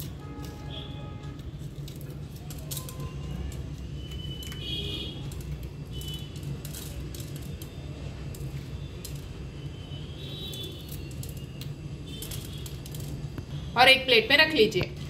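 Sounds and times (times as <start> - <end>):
seeds clicking on ceramic plate: 5.2 - 9.5, 10.5 - 13.5.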